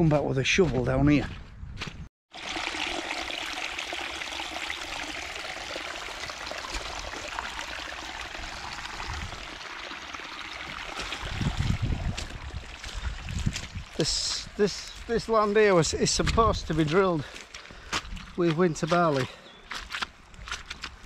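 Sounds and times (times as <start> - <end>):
rainwater trickling down rut: 2.3 - 14.9.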